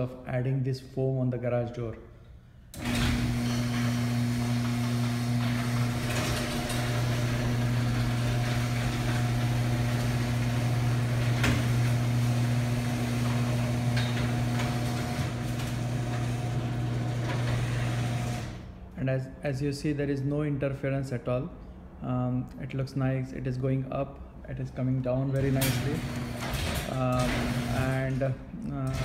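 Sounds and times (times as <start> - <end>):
garage door opener motor humming: 2.7 - 18.8, 25.4 - 29.0
garage door clicks and knocks: 4.6 - 18.5, 25.4 - 28.2.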